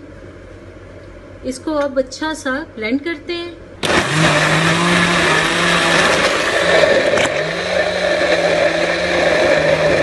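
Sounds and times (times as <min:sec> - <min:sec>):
electric blender motor running: 0:03.8 - 0:10.0.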